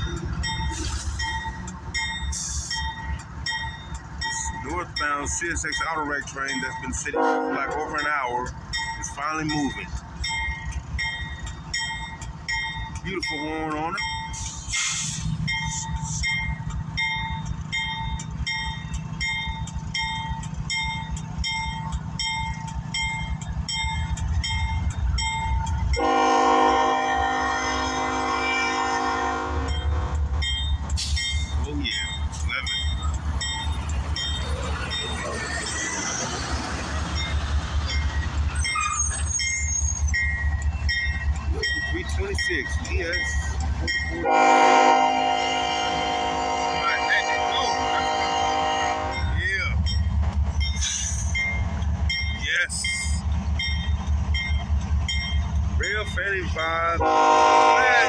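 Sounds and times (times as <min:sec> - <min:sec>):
crossing bell dinging: 0:00.0 - 0:58.0
diesel locomotive running: 0:00.0 - 0:58.0
wheel squeals: 0:30.5 - 0:41.9.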